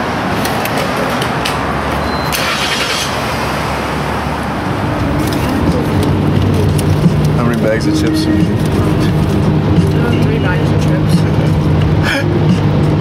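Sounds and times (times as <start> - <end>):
vehicle rumble and hiss: 0.0 - 13.0.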